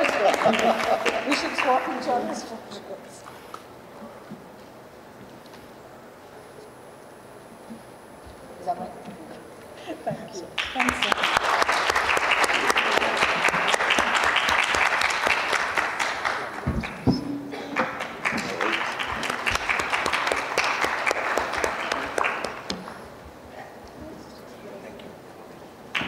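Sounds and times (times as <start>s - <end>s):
audience applauding: 0.0s - 2.5s, 10.5s - 23.2s.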